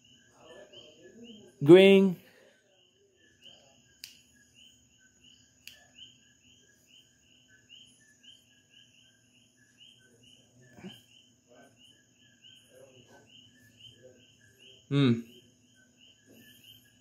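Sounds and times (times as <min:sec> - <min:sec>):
crickets chirping: 0:00.0 - 0:17.0.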